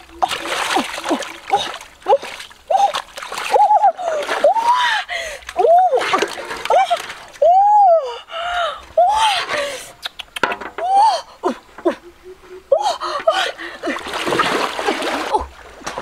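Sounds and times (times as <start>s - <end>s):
river water splashing: 0.0s - 7.9s, 13.3s - 16.0s.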